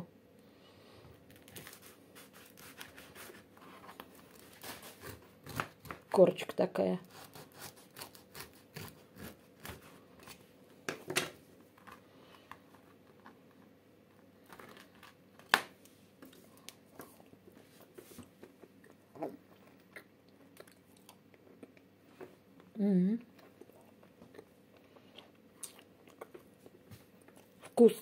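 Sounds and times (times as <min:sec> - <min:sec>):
knife sawing through bread crust: 0:01.6 - 0:05.8, 0:07.0 - 0:10.0.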